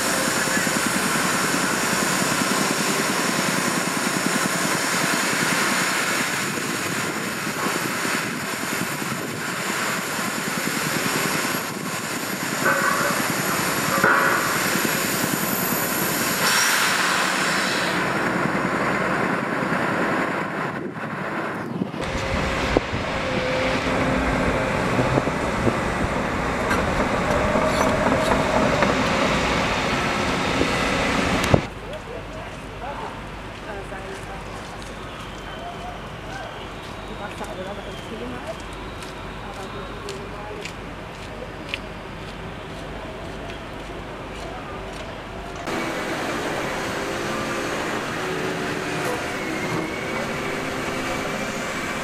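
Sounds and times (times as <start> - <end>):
diesel machinery engine din: 0.0 - 31.8, 45.3 - 52.0
excavator engine rumble: 0.0 - 32.8, 37.4 - 52.0.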